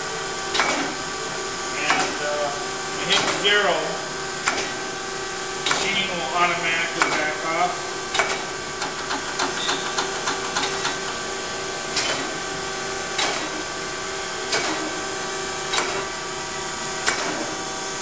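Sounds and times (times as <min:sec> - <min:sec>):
grinder machine hum: 0:00.0 - 0:18.0
sharp machine clack: 0:00.5 - 0:01.0, 0:01.8 - 0:02.4, 0:03.0 - 0:03.8, 0:05.6 - 0:15.0, 0:15.7 - 0:16.2, 0:17.0 - 0:17.6.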